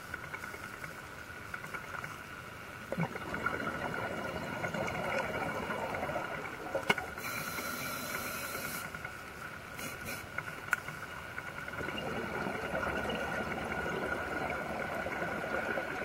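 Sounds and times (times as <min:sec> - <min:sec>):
exhaled bubbles underwater: 0:02.9 - 0:07.3, 0:11.5 - 0:16.0
regulator air hiss: 0:07.1 - 0:09.1, 0:09.7 - 0:10.5.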